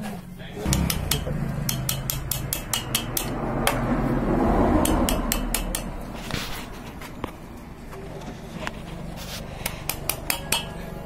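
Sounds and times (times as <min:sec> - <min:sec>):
sharp metallic clicks of pliers: 0:00.7 - 0:03.8, 0:04.8 - 0:06.0.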